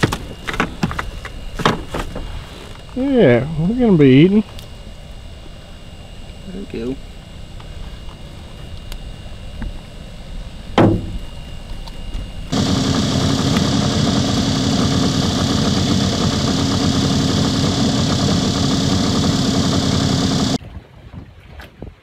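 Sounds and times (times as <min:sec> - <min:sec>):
outboard motor running: 0:12.5 - 0:20.6.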